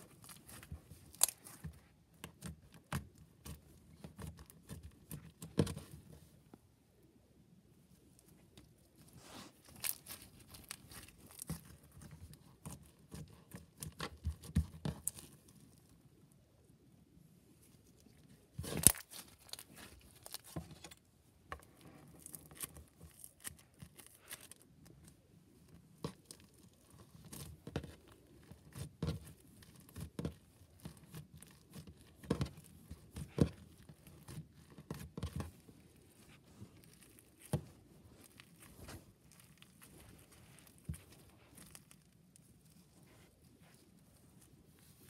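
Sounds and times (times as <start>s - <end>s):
slime squishing with sticky pops: 9.2s - 15.6s, 25.9s - 43.8s.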